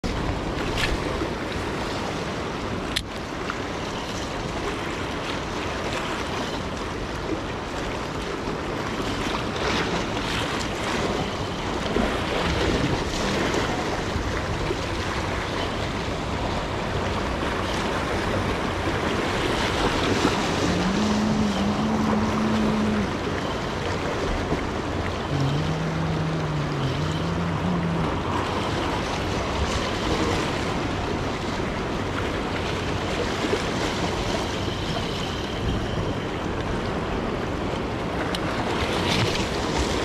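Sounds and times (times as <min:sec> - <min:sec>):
ocean surf washing: 0:00.0 - 0:40.0
wind on microphone: 0:08.9 - 0:40.0
low steady hum: 0:10.8 - 0:38.0.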